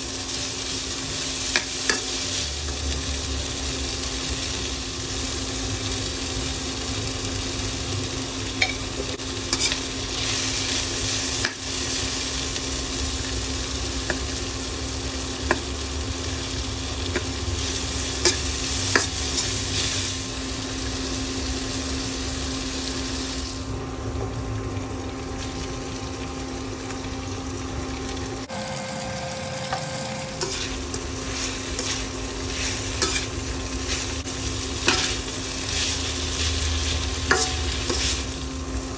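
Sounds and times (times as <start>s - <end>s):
vegetables sizzling in oil: 0.0s - 38.9s
metal spatula scraping a wok: 9.5s - 10.4s, 30.3s - 34.1s, 34.8s - 38.3s.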